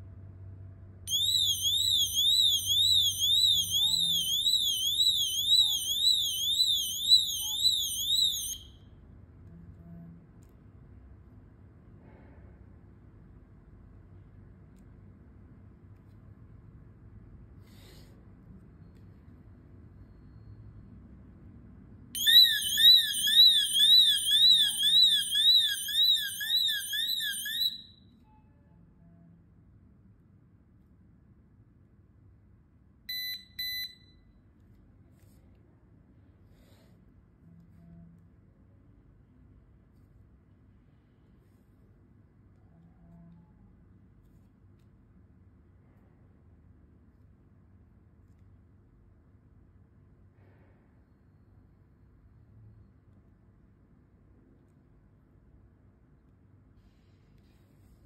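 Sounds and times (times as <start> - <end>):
warbling electronic alarm siren: 1.1 - 8.8, 22.2 - 28.0.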